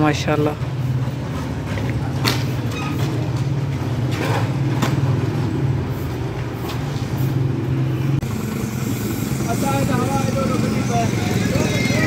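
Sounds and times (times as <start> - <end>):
small motorcycle engine idling: 8.2 - 12.0.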